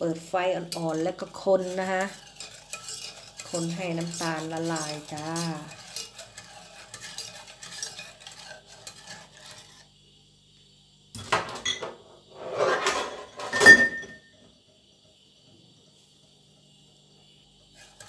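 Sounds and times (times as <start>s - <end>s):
whisk scraping in pot: 0.0s - 10.0s, 17.7s - 18.0s.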